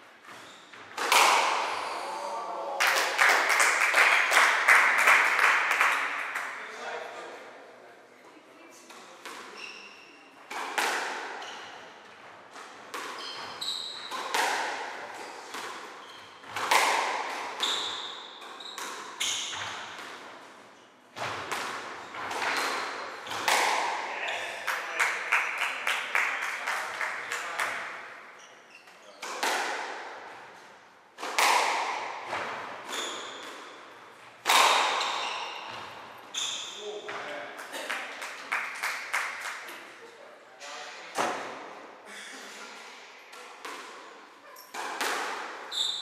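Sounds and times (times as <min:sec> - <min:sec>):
shoe squeaks on wooden floor: 0:00.3 - 0:00.9, 0:09.5 - 0:10.3, 0:13.2 - 0:14.2, 0:17.6 - 0:19.8, 0:32.9 - 0:33.5, 0:35.0 - 0:37.0, 0:45.7 - 0:46.0
squash ball struck by rackets: 0:01.0 - 0:01.7, 0:10.5 - 0:11.4, 0:14.1 - 0:14.9, 0:15.5 - 0:20.3, 0:21.2 - 0:24.0, 0:31.2 - 0:33.8, 0:34.4 - 0:35.8, 0:44.7 - 0:45.7.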